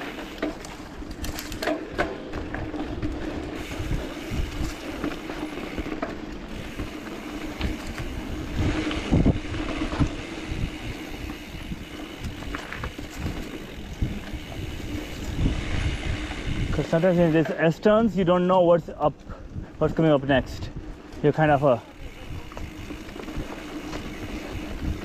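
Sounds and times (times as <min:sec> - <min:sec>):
bike knocking and rattling: 0:00.0 - 0:19.3, 0:19.9 - 0:25.0
bike tyres rumbling on dirt: 0:00.0 - 0:25.0.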